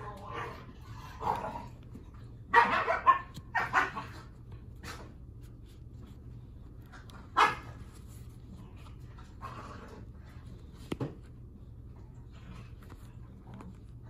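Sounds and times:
dog barking: 2.5 - 4.3, 7.3 - 7.8.

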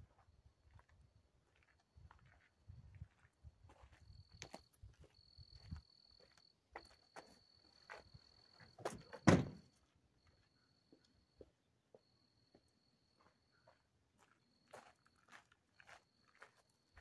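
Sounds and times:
truck door slamming: 9.0 - 9.7.

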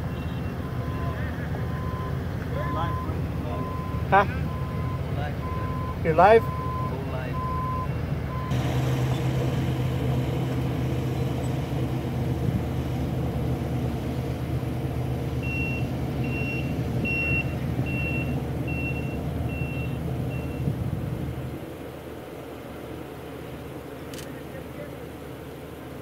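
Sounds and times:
engine drone: 0.0 - 26.0
reversing alarm beeping: 0.1 - 9.4, 15.3 - 20.7.

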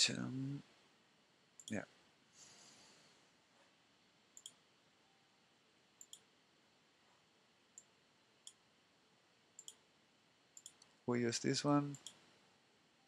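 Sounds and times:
computer mouse clicks: 4.4 - 4.6, 6.0 - 6.3, 9.6 - 9.8, 10.6 - 11.0, 11.9 - 12.2.

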